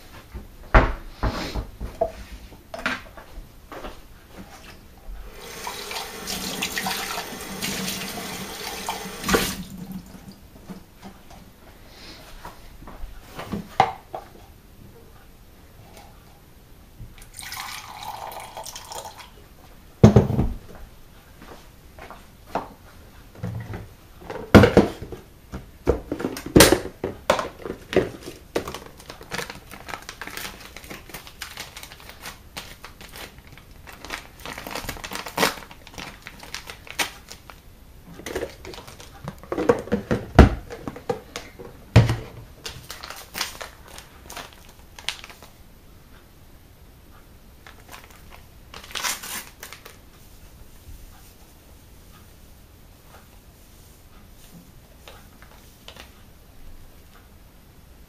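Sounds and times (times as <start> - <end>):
tap water running: 5.3 - 10.4, 17.2 - 19.3
plastic tubs and bottles clattering: 23.4 - 29.5, 38.2 - 42.9.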